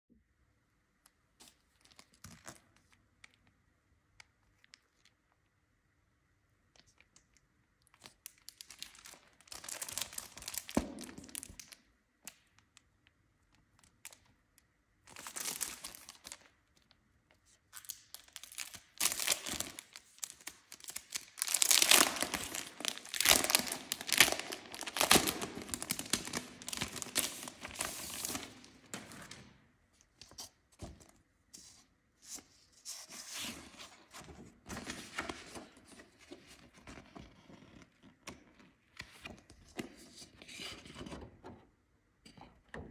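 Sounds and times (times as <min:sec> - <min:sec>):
plastic packaging crinkling and tearing: 0:07.9 - 0:11.8, 0:15.1 - 0:16.9, 0:17.7 - 0:29.5
plastic sheets rustling: 0:17.8 - 0:36.6.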